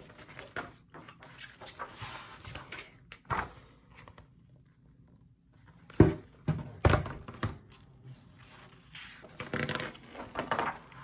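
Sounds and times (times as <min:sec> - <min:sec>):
book pages rustling: 0:00.0 - 0:04.8, 0:07.7 - 0:11.0.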